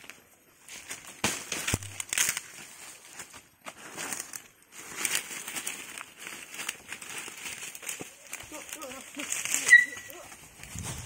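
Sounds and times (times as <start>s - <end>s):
dry leaves crunching underfoot: 0.0s - 11.0s.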